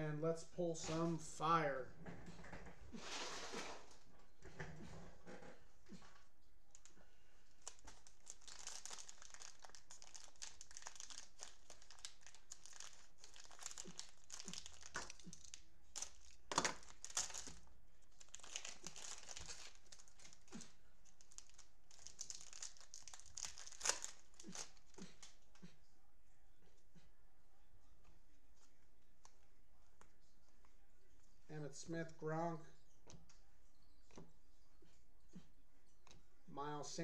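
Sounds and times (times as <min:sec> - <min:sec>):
cellophane wrappers crinkling: 0:06.7 - 0:25.4
wrappers ripping: 0:06.7 - 0:25.4.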